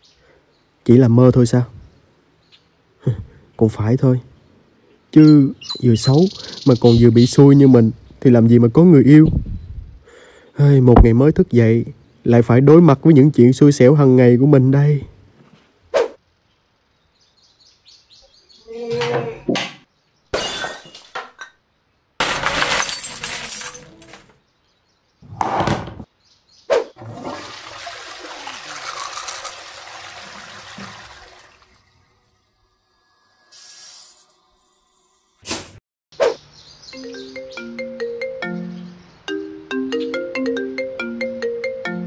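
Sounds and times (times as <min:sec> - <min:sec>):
glass shattering: 0:20.3 - 0:21.5, 0:22.2 - 0:24.3
rushing water: 0:27.0 - 0:32.2.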